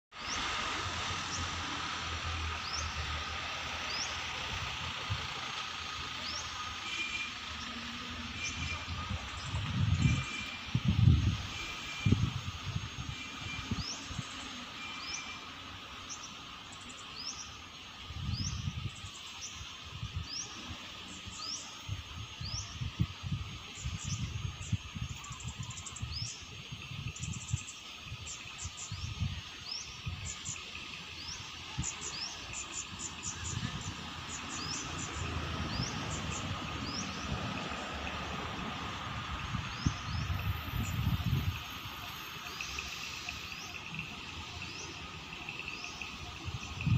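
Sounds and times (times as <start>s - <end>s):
small birds chirping: 2.5s - 38.3s, 39.0s - 46.9s
wind buffeting microphone: 8.4s - 14.4s, 18.1s - 19.1s, 21.8s - 30.6s, 33.0s - 42.1s, 46.2s - 46.9s.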